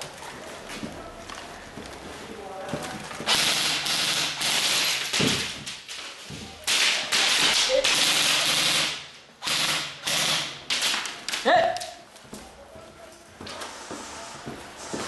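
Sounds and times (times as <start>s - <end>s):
airsoft gun full-auto bursts: 3.3s - 5.2s, 6.7s - 11.0s.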